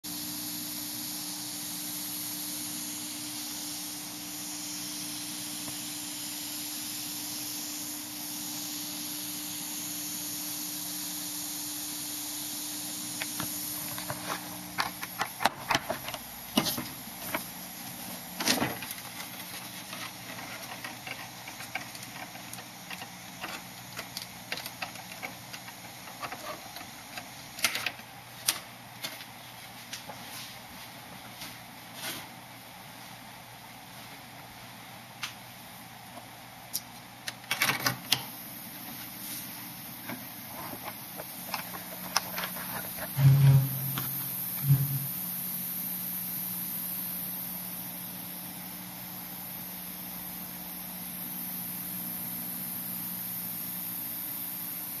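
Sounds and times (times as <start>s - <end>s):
electrical hiss: 0.1s - 31.0s, 38.0s - 55.0s
low hum: 43.1s - 45.3s.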